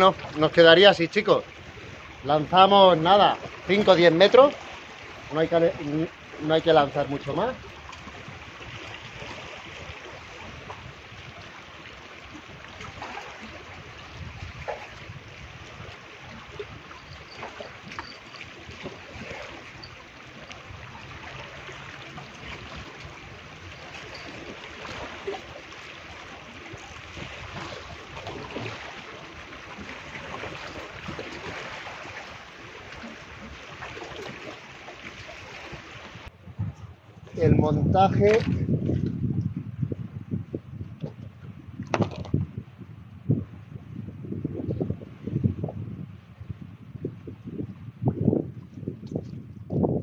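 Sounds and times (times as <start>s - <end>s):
sea waves splashing on rocks: 0.0s - 36.3s.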